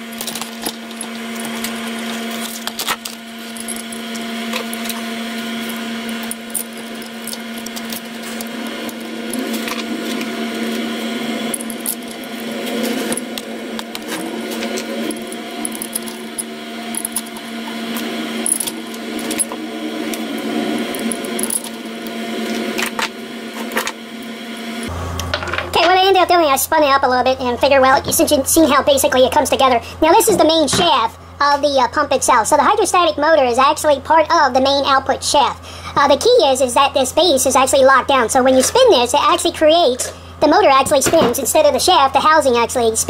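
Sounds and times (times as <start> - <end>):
steady hum: 0.0 - 43.0
metal parts clinking and scraping: 0.1 - 10.8, 11.5 - 20.2, 20.9 - 22.0.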